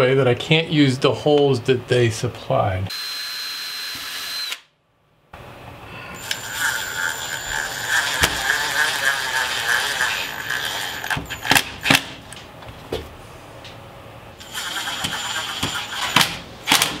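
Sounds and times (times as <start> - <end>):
cordless drill whining: 2.9 - 4.7, 6.2 - 11.4, 14.4 - 16.3.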